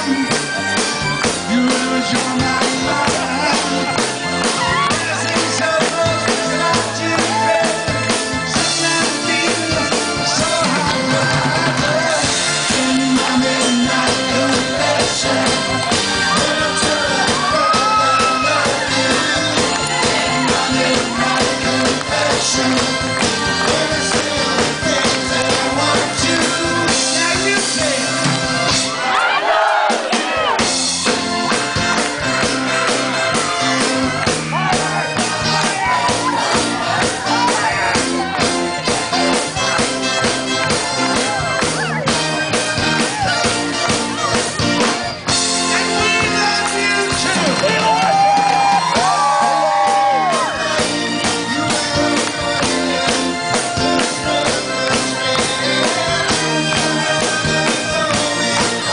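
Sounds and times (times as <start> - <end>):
electric bass guitar: 0.0 - 28.9, 30.4 - 58.9
drums and cymbals: 0.0 - 29.0, 29.9 - 58.9
man singing lead: 1.2 - 28.7, 45.5 - 58.9.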